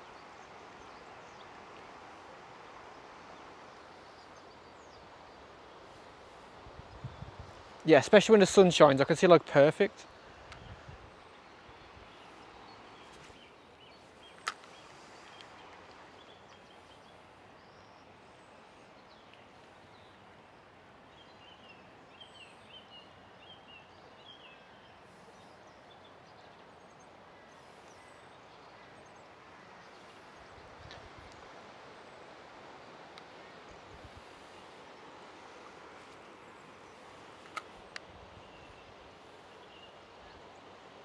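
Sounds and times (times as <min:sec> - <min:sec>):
river water rushing: 0:27.1 - 0:41.0.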